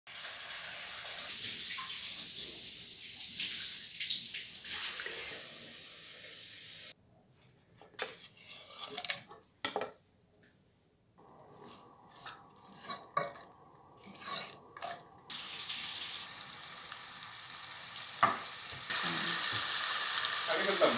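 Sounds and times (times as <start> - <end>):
kitchen tap running: 0.1 - 6.9, 15.2 - 20.9.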